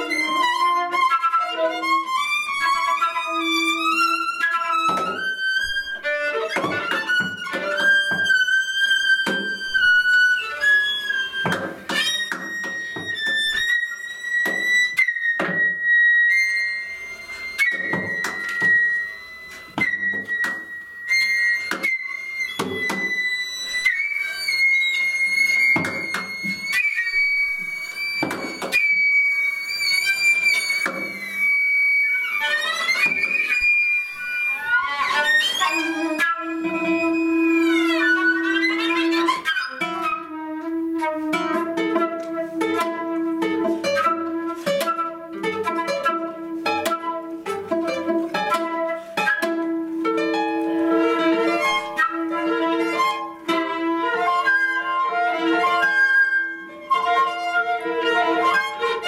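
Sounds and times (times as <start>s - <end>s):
sliding string pitches: 0.0s - 59.0s
high held flute note: 23.8s - 47.2s
plucked guitar: 41.0s - 53.6s.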